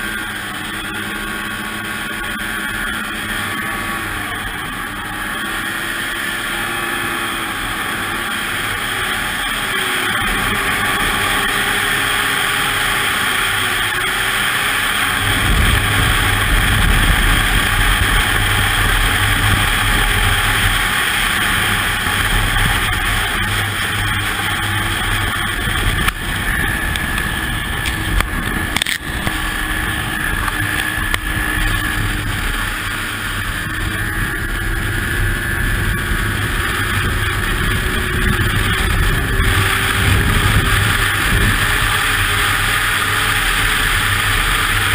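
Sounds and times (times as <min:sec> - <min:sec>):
snowmobile engine running: 0:00.0 - 0:44.9
heavy low rumble: 0:15.1 - 0:44.9.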